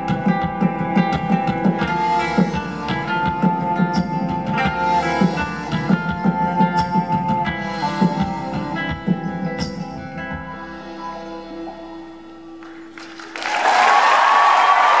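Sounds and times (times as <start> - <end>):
acoustic guitar: 0.0 - 13.0
audience cheering and screaming: 12.9 - 15.0.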